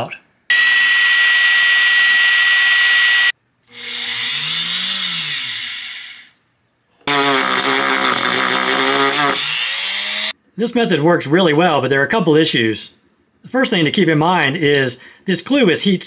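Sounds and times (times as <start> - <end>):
rotary tool spinning: 0.5 - 6.3
electric drill whine: 0.5 - 6.4, 7.1 - 10.3.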